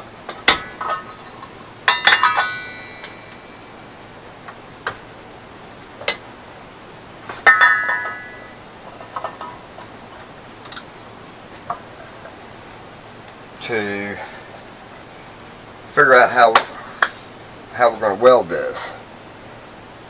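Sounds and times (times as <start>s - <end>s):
sheet metal clanking and ringing: 0.5s - 3.6s, 7.4s - 9.6s.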